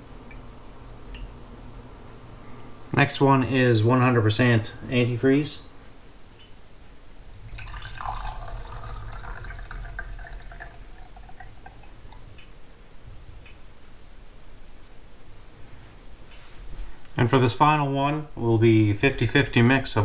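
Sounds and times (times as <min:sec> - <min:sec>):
liquid pouring and splashing: 0:07.3 - 0:12.4
liquid dripping: 0:07.3 - 0:12.6.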